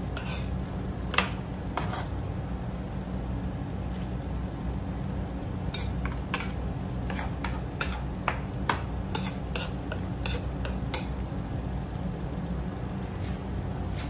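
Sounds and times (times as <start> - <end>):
steady low hum: 0.0 - 14.0
metal ladle scraping a wok: 0.2 - 0.5, 1.8 - 2.1, 5.7 - 8.0, 9.1 - 11.1.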